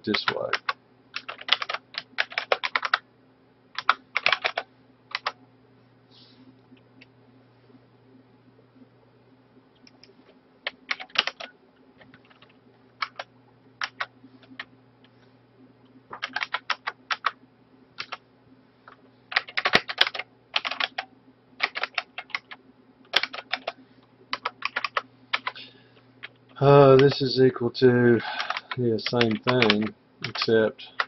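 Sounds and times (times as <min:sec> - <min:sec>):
faint steady hum: 0:00.0 - 0:31.0
keyboard typing: 0:00.1 - 0:03.0, 0:03.8 - 0:05.4, 0:09.8 - 0:14.7, 0:16.1 - 0:17.4, 0:18.0 - 0:18.2, 0:19.3 - 0:25.6, 0:26.2 - 0:27.2, 0:28.2 - 0:31.0.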